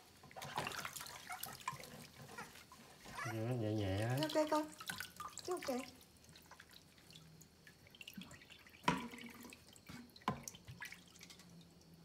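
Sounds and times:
water dripping into basin: 0:04.0 - 0:12.0.

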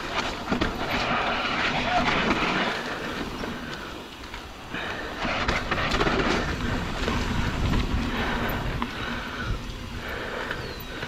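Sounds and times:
bike disc brakes howling: 0:00.0 - 0:11.0
tyres sliding over gravel: 0:00.0 - 0:11.0.

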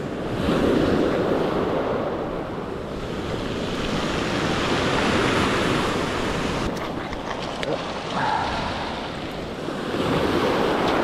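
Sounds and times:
waves washing up pebble beach: 0:02.9 - 0:11.0.

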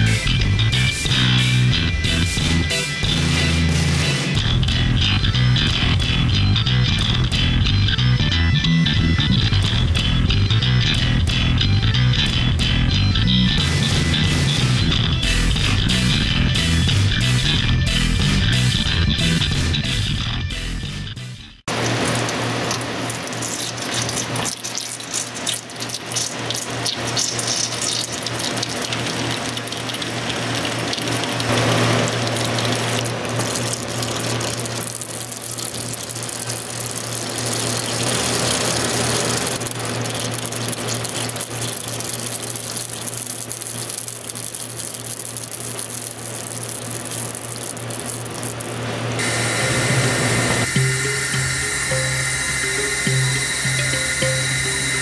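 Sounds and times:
low machine hum: 0:00.0 - 0:24.6, 0:43.6 - 0:55.0
spraying water hissing: 0:49.2 - 0:55.0.

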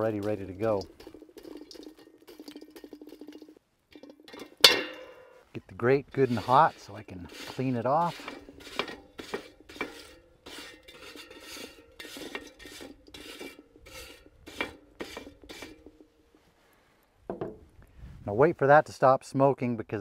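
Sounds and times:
wire brush scraping grill grate: 0:00.0 - 0:05.0, 0:05.8 - 0:16.0.

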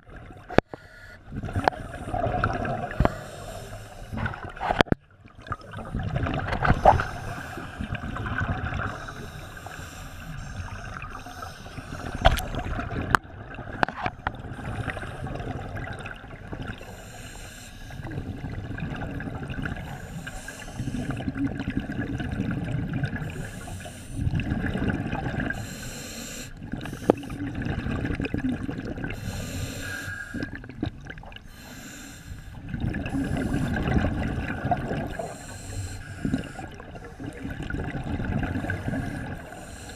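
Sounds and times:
exhaled bubbles rumbling: 0:00.0 - 0:17.2, 0:17.8 - 0:25.9, 0:26.5 - 0:31.8, 0:32.5 - 0:39.9
regulator hissing inhalations: 0:03.0 - 0:04.2, 0:08.9 - 0:12.3, 0:16.8 - 0:18.1, 0:19.9 - 0:21.2, 0:23.3 - 0:24.3, 0:25.6 - 0:27.4, 0:29.2 - 0:30.5, 0:31.5 - 0:33.8, 0:35.2 - 0:37.4, 0:38.6 - 0:39.9.

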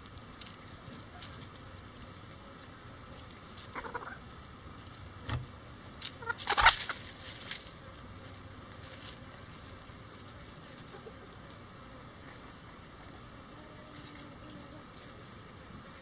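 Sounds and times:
chickens clucking: 0:03.6 - 0:04.3, 0:06.0 - 0:07.2, 0:10.1 - 0:11.8
soft thump: 0:05.3 - 0:05.5.

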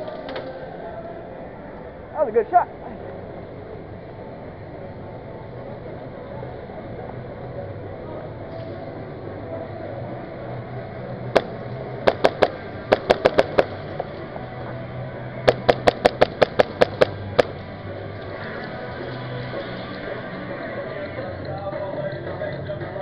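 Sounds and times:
steady hum: 0:10.6 - 0:18.1
airsoft pistol firing: 0:12.1 - 0:13.7, 0:15.5 - 0:17.5.

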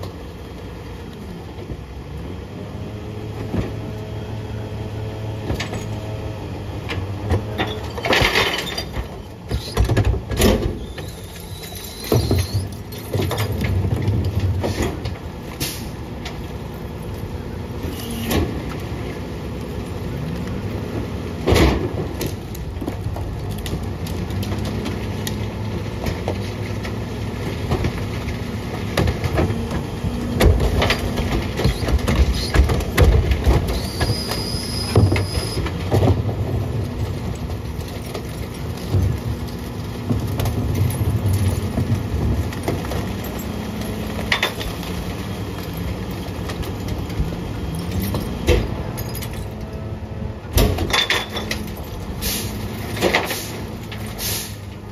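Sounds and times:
garbage truck engine: 0:00.0 - 0:54.9
loud clanks and crunching thumps: 0:06.8 - 0:16.4, 0:20.3 - 0:49.8, 0:50.4 - 0:54.8
brief high squeal: 0:10.8 - 0:12.7, 0:33.8 - 0:35.6.

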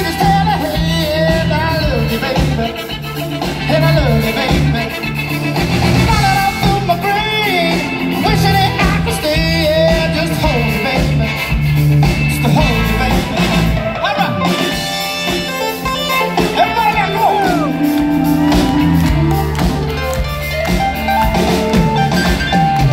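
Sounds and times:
man singing lead: 0:00.0 - 0:20.2
soul band playing: 0:00.0 - 0:22.9.

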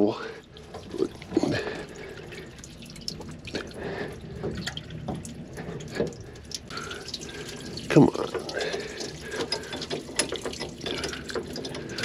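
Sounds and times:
water spurting and splashing: 0:00.0 - 0:12.0.

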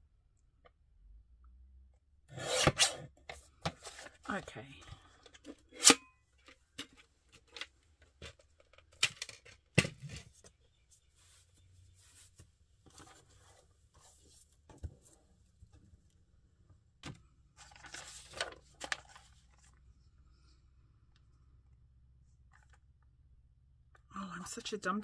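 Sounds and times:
paper rustling: 0:17.6 - 0:19.8.

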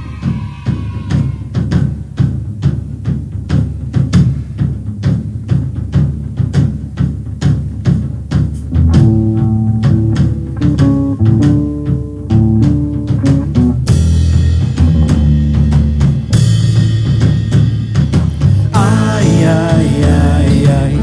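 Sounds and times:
pop band playing: 0:08.7 - 0:17.3, 0:18.4 - 0:21.0.

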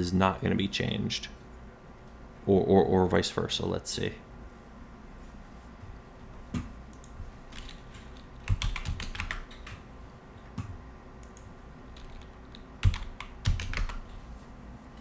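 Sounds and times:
computer keyboard typing: 0:06.6 - 0:09.9, 0:10.6 - 0:14.1.

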